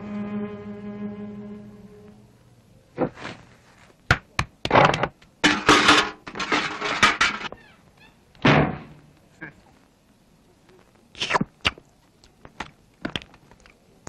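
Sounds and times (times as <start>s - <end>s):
held musical chord: 0.0s - 2.5s.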